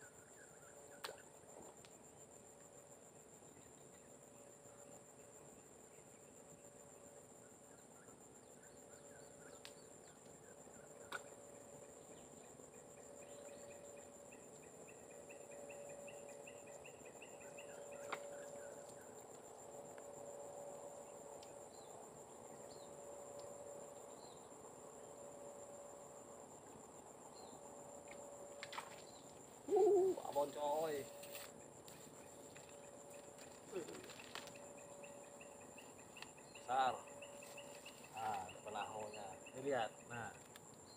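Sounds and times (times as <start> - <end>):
high insect drone: 0.0 - 40.9.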